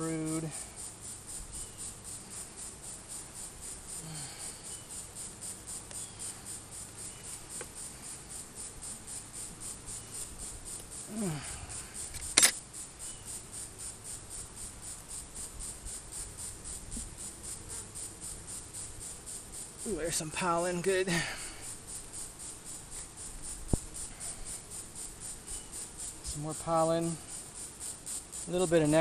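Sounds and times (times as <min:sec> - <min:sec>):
insects singing pulsing chorus: 0:00.0 - 0:29.0
hive tool clicking on wood: 0:07.6 - 0:07.8, 0:12.0 - 0:12.6.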